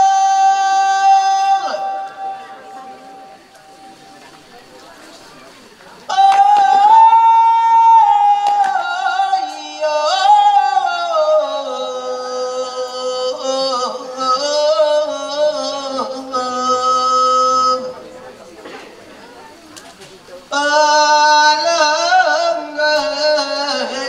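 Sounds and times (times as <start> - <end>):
person singing slow melody: 0.0 - 4.1, 6.1 - 18.2, 20.5 - 24.0.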